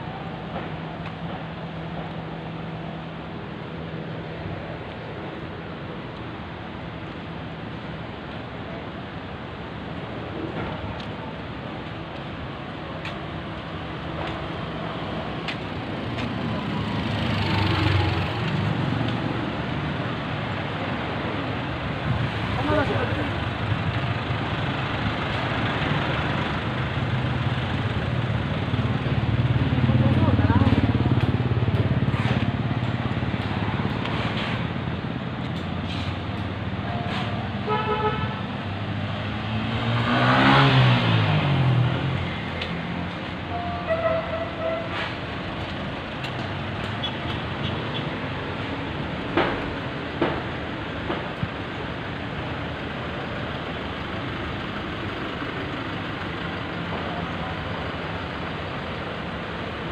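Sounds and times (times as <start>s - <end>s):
city street traffic: 0.0s - 59.9s
cars driving past: 9.8s - 59.9s
vehicle engine passing: 15.0s - 20.4s, 38.3s - 43.4s
car horn toot: 37.6s - 38.4s, 43.6s - 44.9s
vehicle passing close: 38.6s - 43.4s.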